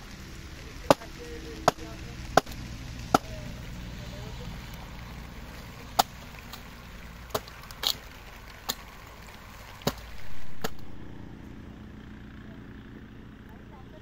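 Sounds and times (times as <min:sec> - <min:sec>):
axe chopping wood: 0:00.9 - 0:03.4, 0:05.5 - 0:09.0, 0:09.7 - 0:11.1
low rush: 0:08.4 - 0:13.5.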